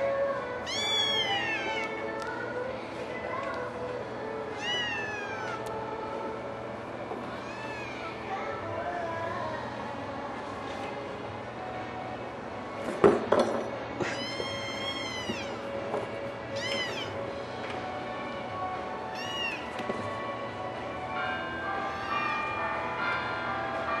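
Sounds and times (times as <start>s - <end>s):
kitten meowing: 0.7s - 2.0s, 4.6s - 5.6s, 14.0s - 15.6s, 16.6s - 17.2s, 19.1s - 19.7s.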